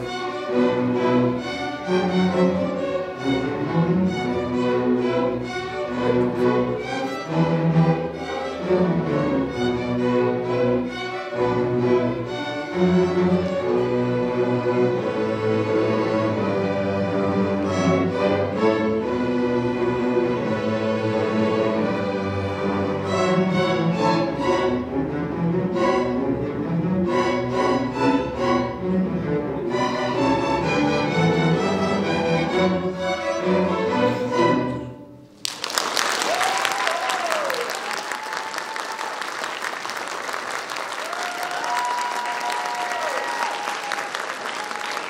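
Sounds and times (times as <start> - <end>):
string orchestra playing a waltz: 0.0 - 35.3
audience applauding: 35.4 - 45.0
audience cheering: 35.5 - 45.0.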